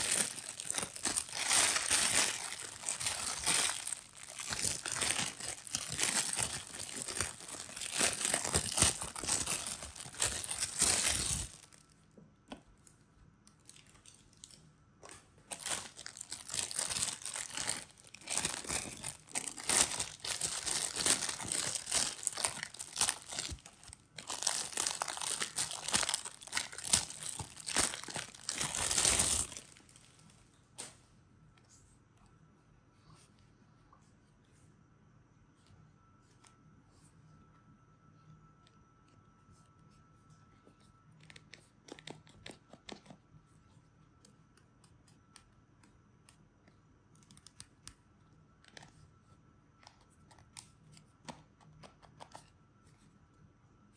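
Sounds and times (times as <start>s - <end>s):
plastic bags crinkling: 0.0s - 11.9s, 15.5s - 30.3s.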